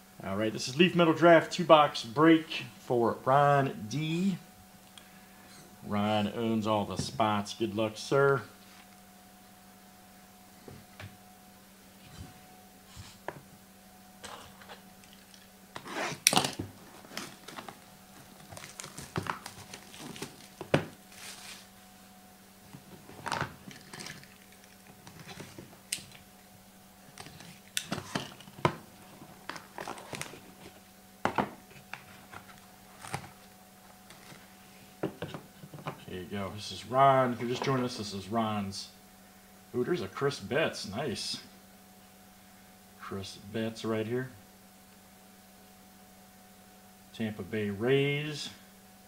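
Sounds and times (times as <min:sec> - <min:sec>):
plastic shrink-wrap crinkling and tearing: 0:15.0 - 0:21.7
cardboard boxes and plastic cases handled: 0:15.8 - 0:21.8, 0:22.7 - 0:25.8, 0:27.1 - 0:36.1.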